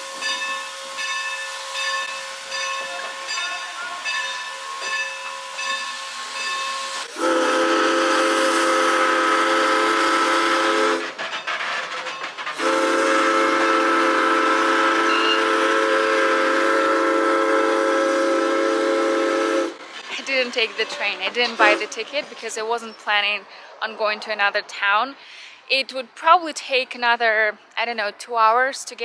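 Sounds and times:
steam locomotive whistle: 0.0 - 11.2, 12.6 - 19.8
steam hissing: 0.0 - 20.3.

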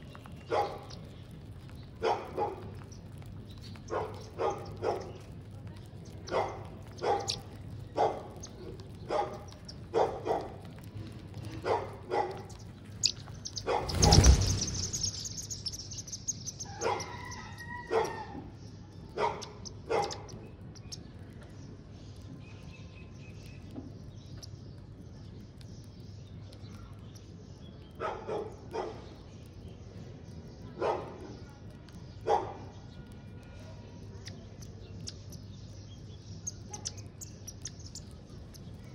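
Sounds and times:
dog barking: 0.5 - 0.9, 2.0 - 2.7, 3.9 - 5.2, 6.3 - 7.4, 8.0 - 8.3, 9.1 - 10.6, 11.6 - 12.5, 13.6 - 14.2, 16.8 - 17.2, 17.8 - 18.3, 19.2 - 20.3, 28.0 - 29.1, 30.8 - 31.4, 32.2 - 32.7.

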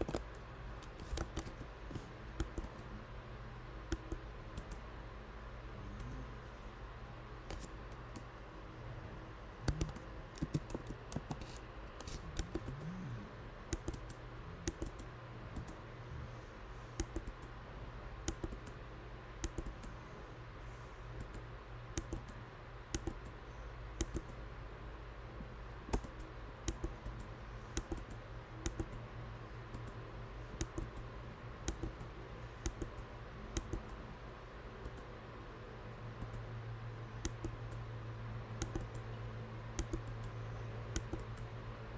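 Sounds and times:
computer keyboard typing: 0.0 - 1.7, 2.4 - 2.9, 3.9 - 4.8, 7.5 - 8.2, 9.7 - 13.0, 13.7 - 15.8, 17.0 - 17.5, 18.2 - 18.8, 19.4 - 19.9, 21.2 - 23.3, 24.0 - 24.4, 25.9 - 29.0, 29.7 - 31.0, 31.6 - 34.0, 37.2 - 37.8, 38.6 - 39.0, 39.8 - 41.5
steady low hum: 0.0 - 41.9.

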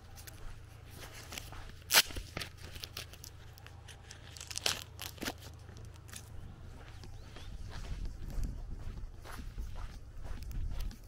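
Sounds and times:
faint low rumble: 0.0 - 11.0
footsteps crunching on dirt road: 0.0 - 11.0
sharp crack: 1.8 - 3.4.

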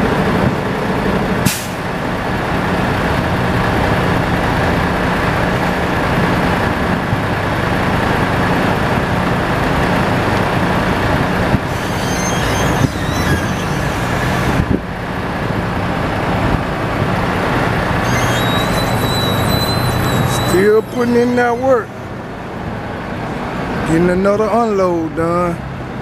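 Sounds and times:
forklift engine working: 9.7 - 16.2, 16.9 - 23.6.

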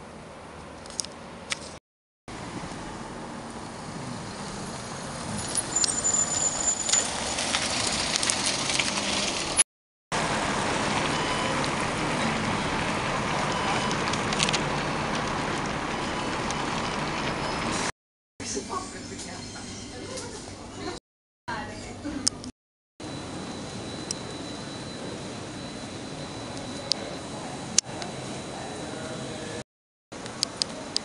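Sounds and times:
high squeal: 3.6 - 7.6, 18.9 - 20.1.

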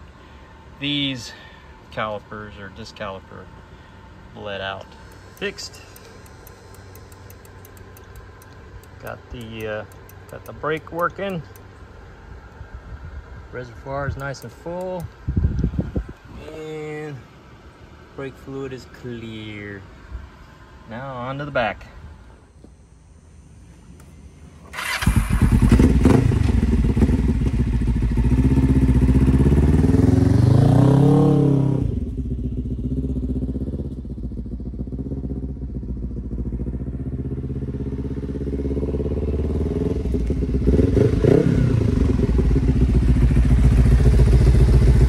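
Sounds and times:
motorcycle engine revving: 24.6 - 45.0.

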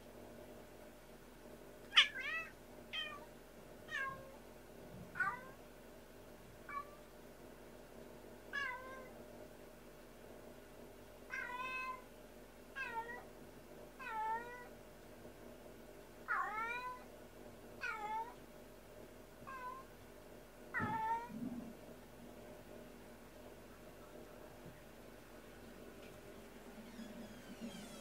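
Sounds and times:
cat meowing loudly: 1.9 - 3.3.

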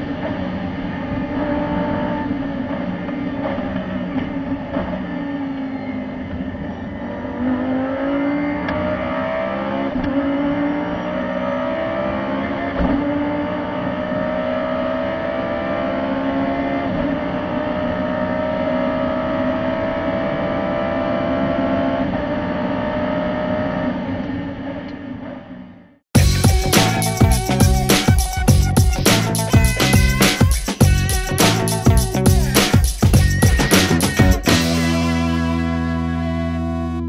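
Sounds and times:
race car engine accelerating: 0.0 - 25.4.

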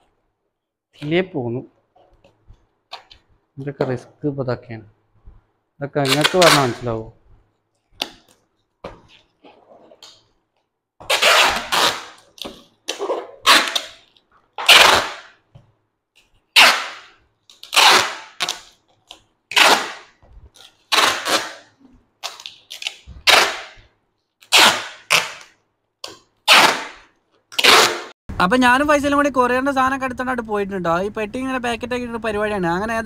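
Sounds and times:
sharp ripping noises: 6.0 - 7.0, 11.0 - 15.4, 16.5 - 23.8, 24.4 - 28.2.

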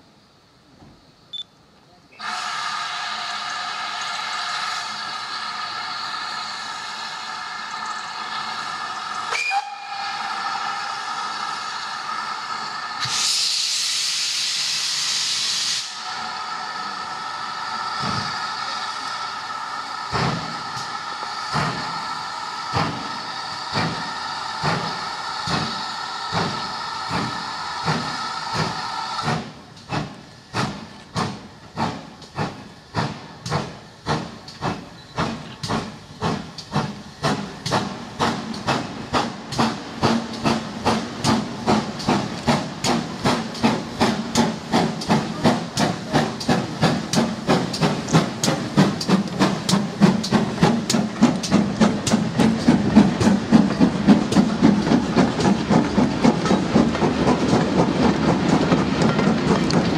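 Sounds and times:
loud steam hiss: 2.1 - 59.9
steam locomotive exhaust chuffs: 2.2 - 59.9
steam locomotive whistle: 9.3 - 10.8.

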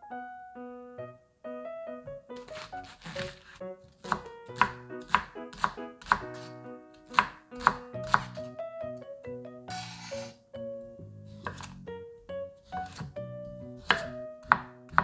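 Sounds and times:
light background music: 0.0 - 15.0
knife chopping on cutting board: 2.4 - 8.5, 11.4 - 11.7, 12.6 - 13.2, 13.8 - 15.0.

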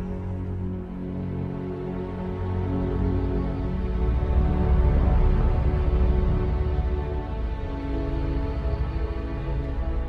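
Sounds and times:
slow instrumental music: 0.0 - 10.0.

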